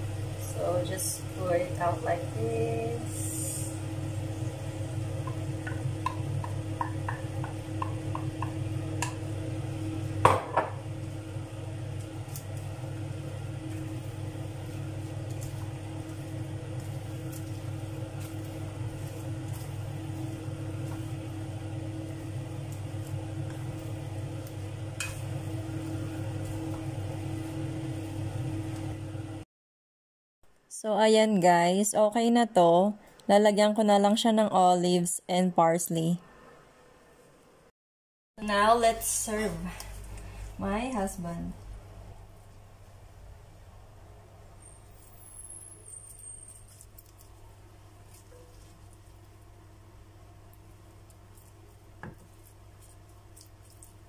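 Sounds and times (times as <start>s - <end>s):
low steady hum: 0.0s - 29.4s
spoon knocking against pan: 5.2s - 9.2s.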